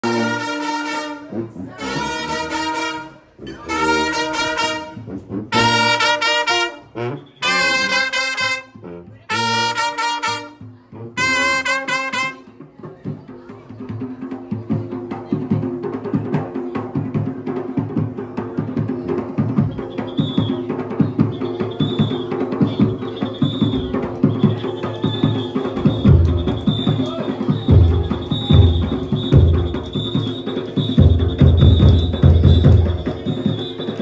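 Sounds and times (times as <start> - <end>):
brass horns blasting: 0.0 - 10.6, 11.2 - 12.4
fast drumming and percussion: 3.6 - 34.0.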